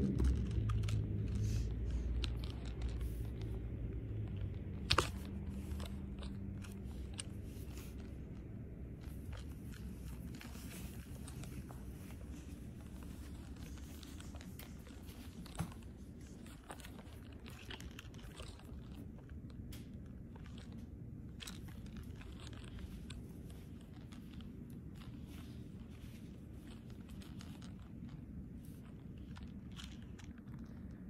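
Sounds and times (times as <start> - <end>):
low room hum: 0.0 - 31.0
camera handling clicks and rustles: 4.2 - 31.0.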